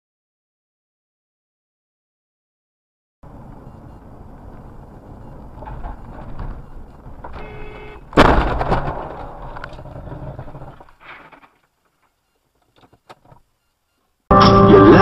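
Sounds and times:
brief tone: 3.6 - 4.1, 5.2 - 8.0
car crash: 5.5 - 11.6.

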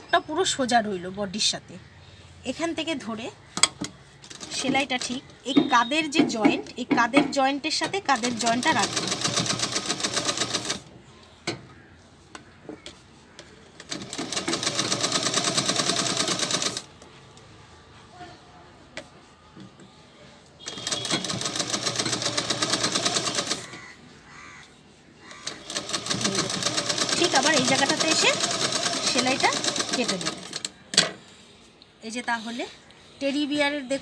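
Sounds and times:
sewing machine stitching: 4.2 - 5.2, 7.9 - 10.8, 13.8 - 16.9, 20.6 - 23.8, 25.4 - 30.7.

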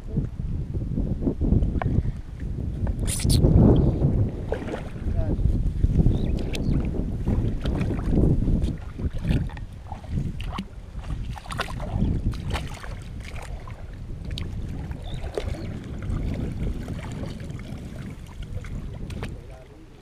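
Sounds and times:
wind on microphone: 0.0 - 20.0
water sloshing and splashing: 4.2 - 5.2, 6.4 - 20.0.

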